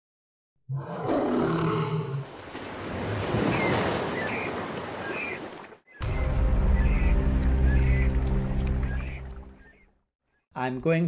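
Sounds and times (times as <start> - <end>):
lion roar: 0.7 - 2.3
rushing water: 2.2 - 9.7
high bird chirps: 3.5 - 10.4.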